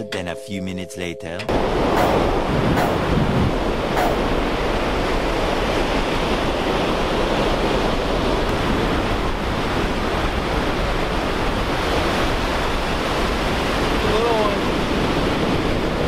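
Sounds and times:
ocean surf breaking: 1.5 - 16.0
wind buffeting microphone: 1.5 - 16.0.

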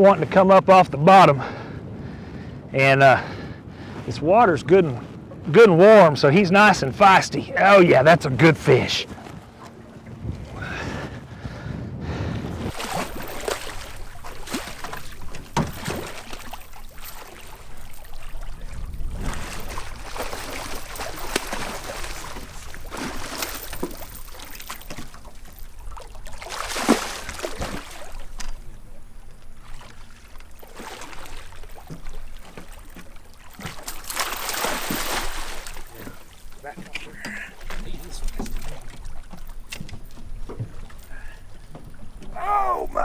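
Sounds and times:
water sloshing against hull: 0.0 - 43.0
fish splashing at surface: 12.7 - 17.8.

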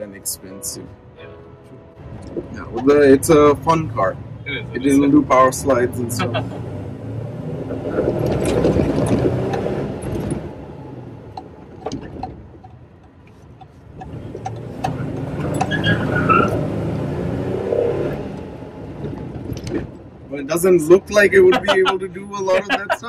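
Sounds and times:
engine revving: 2.6 - 11.1, 14.0 - 19.1.

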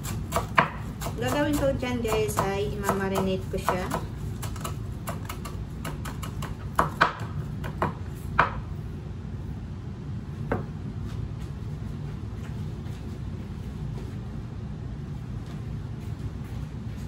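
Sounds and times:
knife chopping on cutting board: 0.0 - 8.6
steady low hum: 0.0 - 17.0.

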